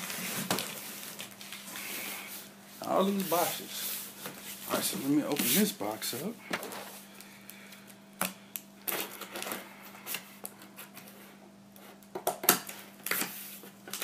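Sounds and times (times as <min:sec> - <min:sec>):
cardboard scraping and rustling: 0:00.0 - 0:01.6.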